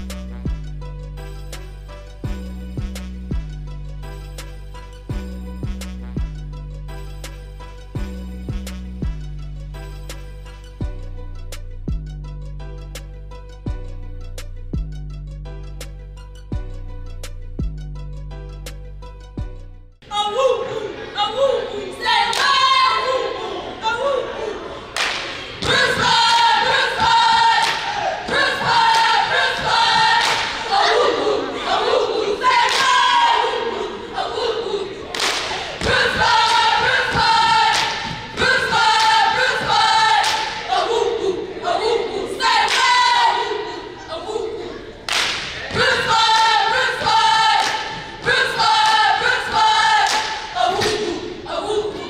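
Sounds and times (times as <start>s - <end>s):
cheerleaders chanting in unison: 20.0s - 52.0s
stomps or claps: 25.0s - 29.1s, 29.9s - 30.7s, 35.2s - 39.2s, 40.2s - 40.6s, 45.1s - 46.5s, 50.0s - 51.1s.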